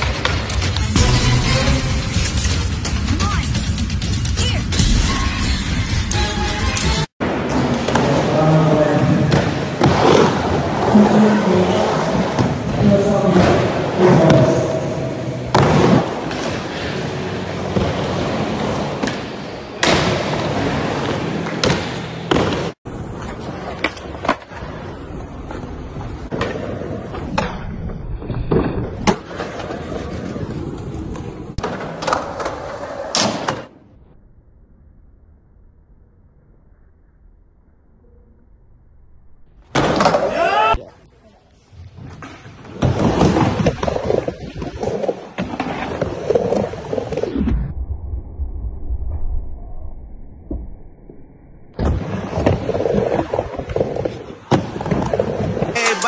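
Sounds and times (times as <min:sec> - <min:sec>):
skateboard wheels rolling on concrete: 0:00.0 - 0:04.0, 0:06.5 - 0:34.0, 0:39.6 - 0:47.7, 0:51.8 - 0:56.0.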